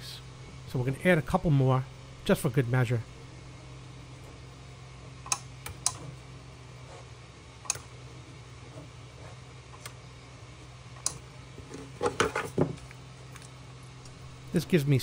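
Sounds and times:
steady low hum: 0.0s - 15.0s
spot welder clicks: 5.2s - 6.0s, 7.6s - 7.9s.

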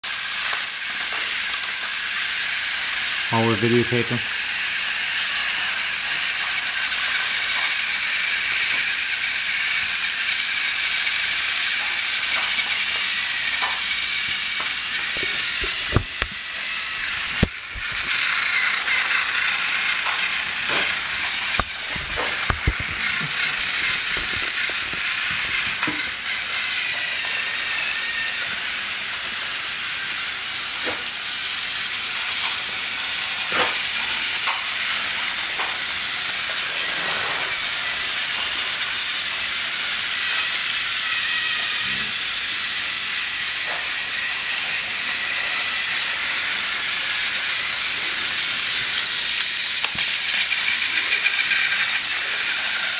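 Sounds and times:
toy train motors whirring: 0.0s - 52.9s
sharp clicks and knocks: 13.6s - 16.4s, 17.1s - 18.2s, 20.1s - 26.2s.

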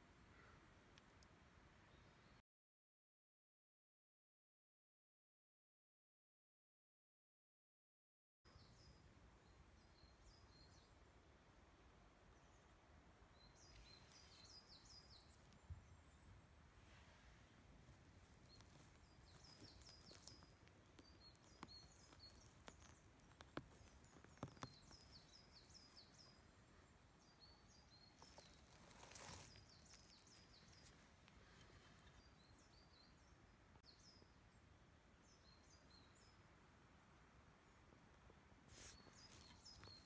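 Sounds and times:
birds chirping: 13.3s - 17.2s, 17.8s - 36.6s, 38.7s - 40.0s
rustle of pine needles: 13.6s - 15.7s, 16.7s - 26.7s, 27.9s - 32.6s, 38.6s - 40.0s.

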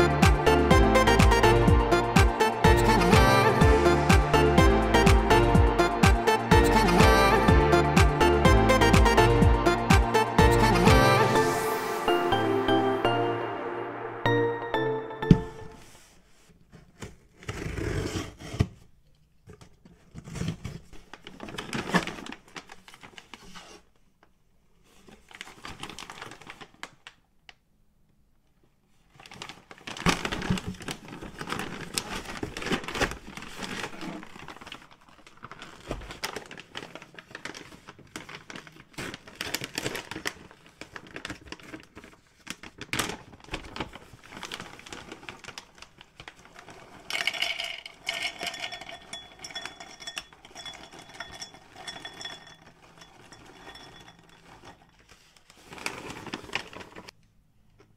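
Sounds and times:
plastic pouches crinkling: 20.3s - 23.6s, 24.9s - 27.2s, 29.1s - 57.2s.

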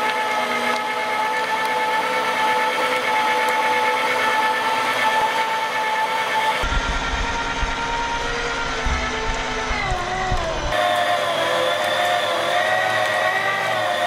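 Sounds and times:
meat grinder motor whining: 0.0s - 14.0s
low rumble: 6.6s - 10.8s.

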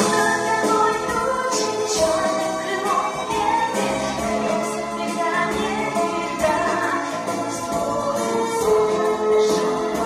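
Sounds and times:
rock band accompaniment: 0.0s - 10.0s
choir singing: 3.4s - 10.0s.

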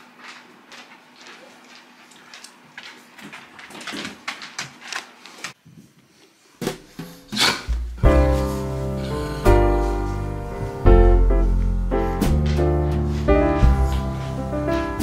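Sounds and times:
dog claws clicking on wooden floor: 0.2s - 5.6s.

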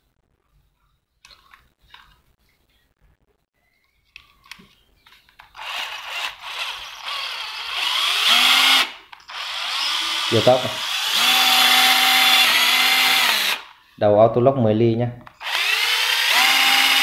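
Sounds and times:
cordless drill motor whirring: 5.6s - 13.8s, 15.4s - 17.0s.

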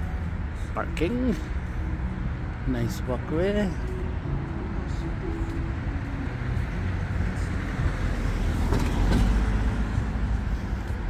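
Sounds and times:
low traffic rumble: 0.0s - 11.0s
car driving past: 4.9s - 11.0s.

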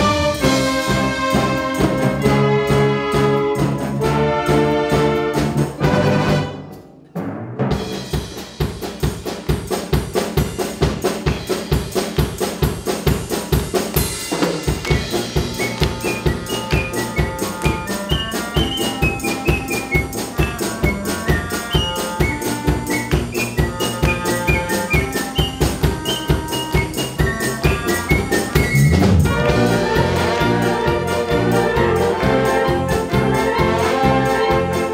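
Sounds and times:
fast drum kit beat: 0.0s - 6.6s, 7.2s - 34.9s
wind band playing: 0.0s - 6.9s, 14.2s - 34.9s
held brass chords: 0.0s - 7.8s, 14.3s - 34.9s
high melody: 14.7s - 34.9s.

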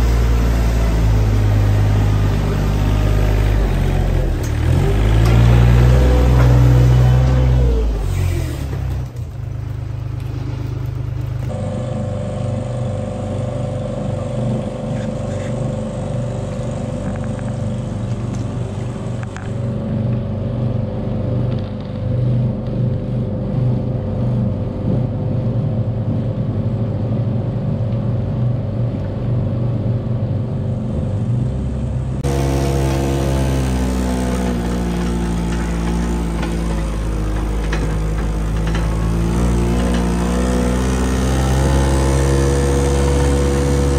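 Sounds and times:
loader engine revving: 0.0s - 43.9s
steady machine hum: 11.5s - 43.9s.

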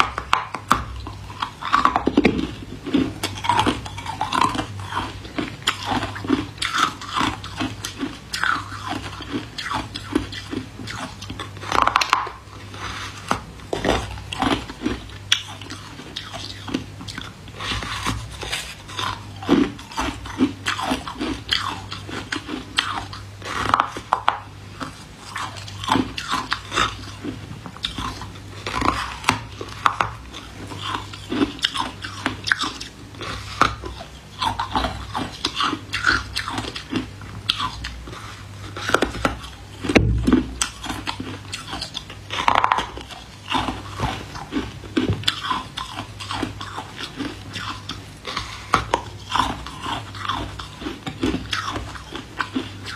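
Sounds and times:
ice crunching between teeth: 0.0s - 52.9s.

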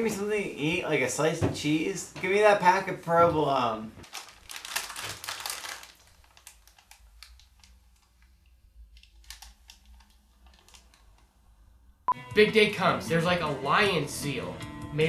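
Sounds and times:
plastic packaging crinkling: 4.0s - 11.4s.

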